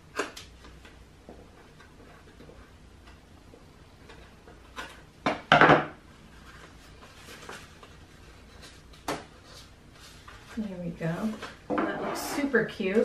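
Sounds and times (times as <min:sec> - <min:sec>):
paper handling: 0:06.3 - 0:11.6.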